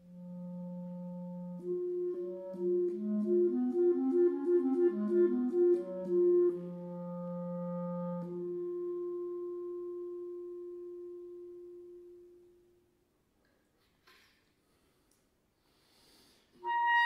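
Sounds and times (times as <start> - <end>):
solo clarinet playing: 0.0 - 12.9, 16.6 - 17.0.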